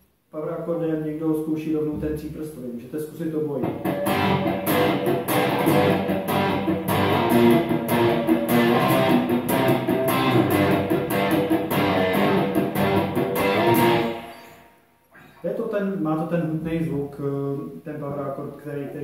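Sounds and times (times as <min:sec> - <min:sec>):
electric guitar strumming power chords: 0:03.6 - 0:14.7.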